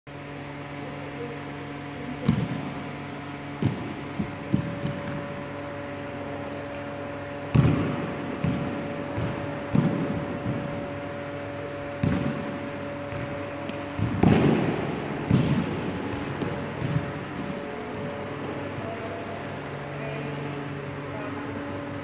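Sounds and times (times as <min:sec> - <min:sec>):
steady hum: 0:00.1 - 0:22.0
balls thudding on floor: 0:03.6 - 0:05.4, 0:07.5 - 0:10.8, 0:11.9 - 0:18.2.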